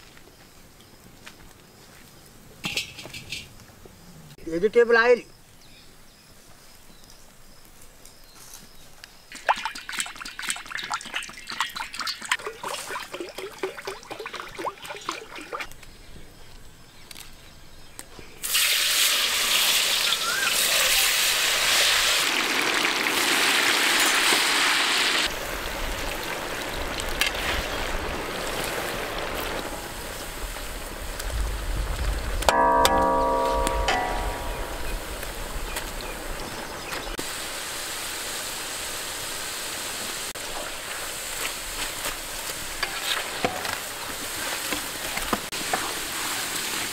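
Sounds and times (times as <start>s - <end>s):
oil glugging from a jug: 9.3s - 15.7s
potatoes sizzling in hot oil: 18.4s - 32.4s, 35.0s - 46.9s.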